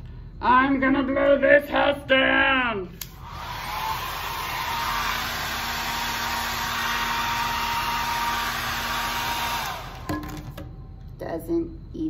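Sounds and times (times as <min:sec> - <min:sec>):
hair dryer blowing: 0:03.1 - 0:10.1.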